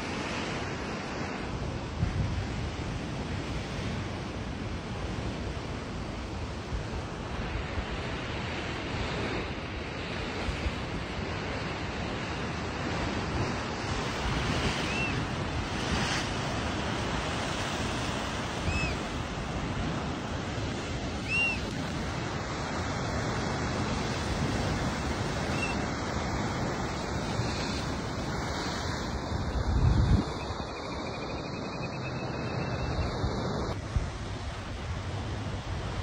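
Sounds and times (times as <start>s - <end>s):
high chirps: 21.2s - 21.7s.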